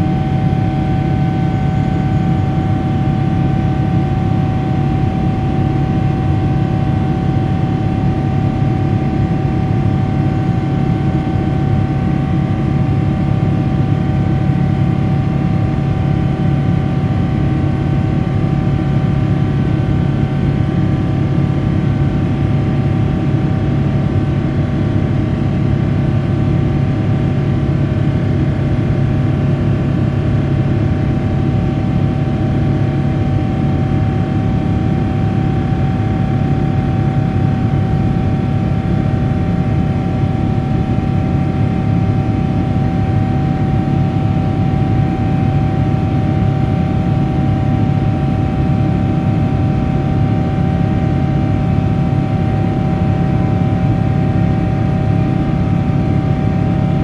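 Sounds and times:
droning fan tone: 0.0s - 57.0s
jet engine rumble in cabin: 0.0s - 57.0s.

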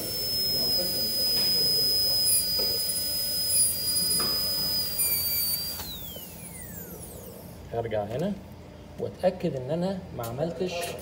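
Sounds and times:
dental drill whining: 0.0s - 7.6s.

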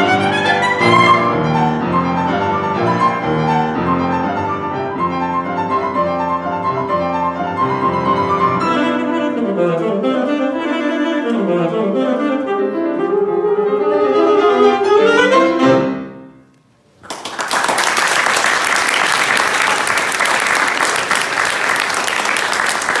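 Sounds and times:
alto saxophone: 0.0s - 16.6s
piano: 0.0s - 23.0s
audience applause: 17.0s - 23.0s.

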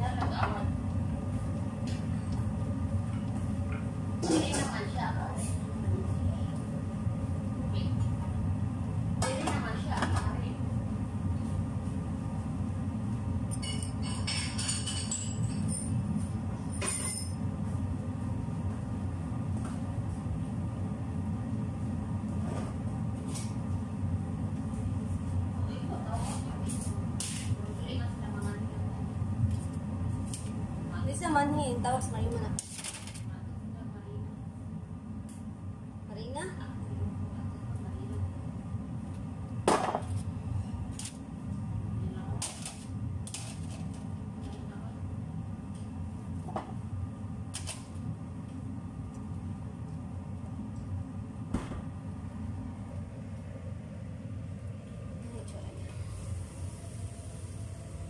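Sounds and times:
range hood fan rumbling: 0.0s - 58.0s
steady low hum: 0.0s - 58.0s
kitchenware clinking: 13.5s - 16.0s, 16.6s - 17.4s.

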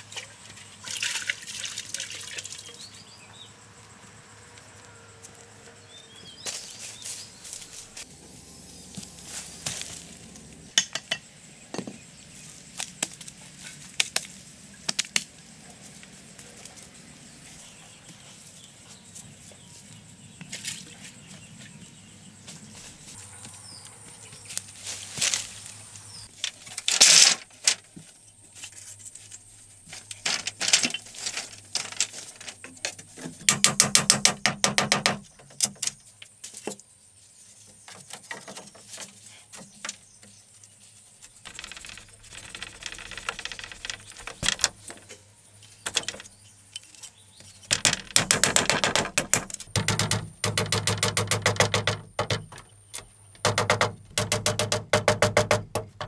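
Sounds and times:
rubbing against bamboo slats: 37.4s - 52.4s.

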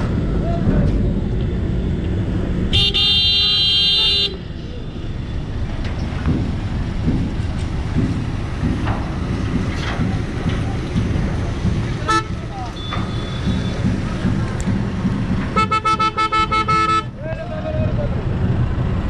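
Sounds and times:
low rumble of engines: 0.0s - 19.0s.

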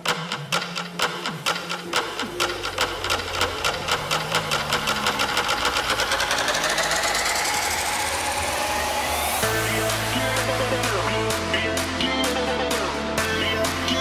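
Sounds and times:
drum roll: 0.0s - 11.9s
rising synth sweep: 1.7s - 11.8s.

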